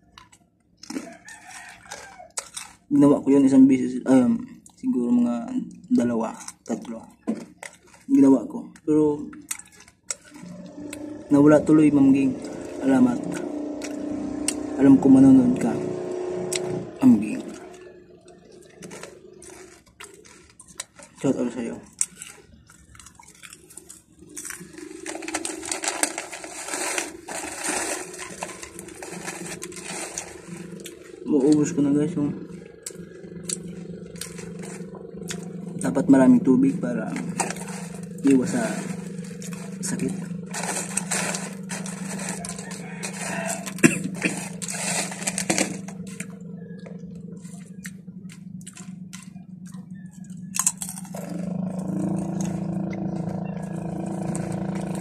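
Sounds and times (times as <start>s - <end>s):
plastic chip bag crinkling: 0.0s - 3.8s, 5.7s - 55.0s
low hum: 8.8s - 55.0s.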